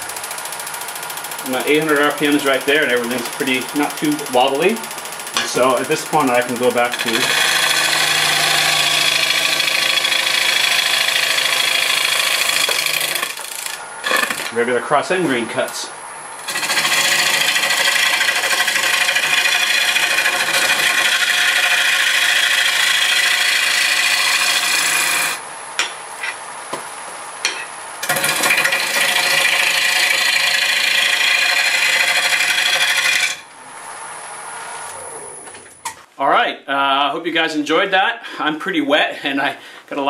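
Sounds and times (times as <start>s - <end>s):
lathe running: 0.0s - 14.6s, 15.4s - 25.9s, 28.0s - 33.4s
gouge cutting wood on lathe: 0.1s - 14.6s, 16.4s - 25.4s, 28.0s - 33.4s.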